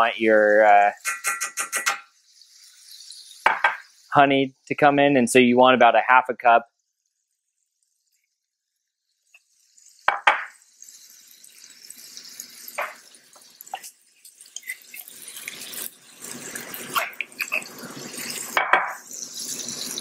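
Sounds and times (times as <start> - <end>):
sauce sizzling in skillet: 0.0 - 5.4, 6.7 - 20.0
spoon knocking glass jar: 1.0 - 2.1, 3.5 - 3.8, 10.1 - 10.6, 12.8 - 13.0, 18.6 - 19.1.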